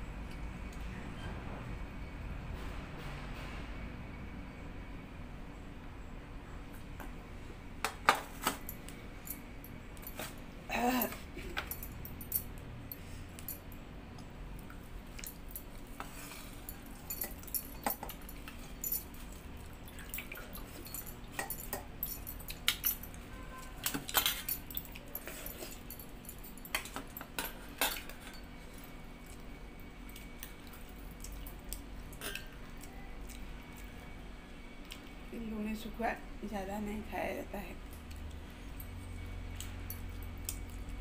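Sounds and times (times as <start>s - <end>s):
bangles jangling: 8.5s - 13.8s, 15.2s - 28.6s, 38.7s - 41.0s.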